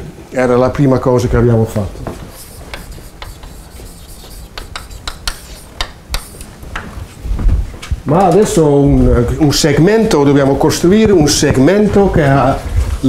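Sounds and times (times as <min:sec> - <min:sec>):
chalk scratching on blackboard: 0:01.8 - 0:06.6.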